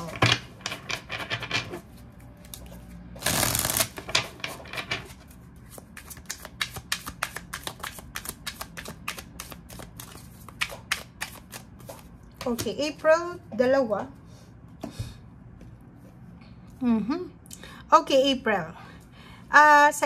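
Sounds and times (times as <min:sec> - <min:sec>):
cards shuffling: 0:02.4 - 0:12.7.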